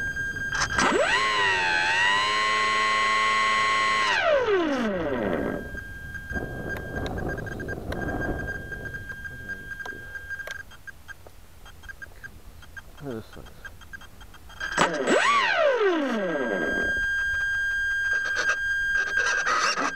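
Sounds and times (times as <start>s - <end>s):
electric motor and propeller whine: 0.0s - 10.9s, 14.0s - 19.9s
wind rushing over microphone: 5.4s - 10.2s.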